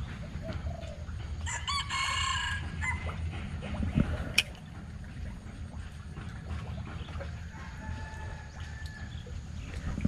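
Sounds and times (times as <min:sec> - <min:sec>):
rooster crowing: 0:01.5 - 0:03.0, 0:07.6 - 0:09.1.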